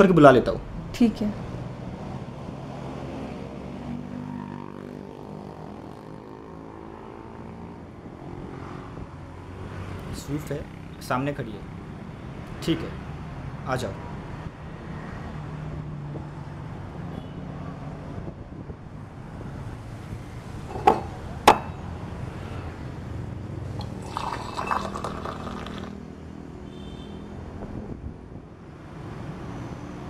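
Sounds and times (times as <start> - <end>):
low hum of road traffic: 0.0 - 30.0
glasses and utensils clinking: 20.7 - 21.8, 23.8 - 25.9.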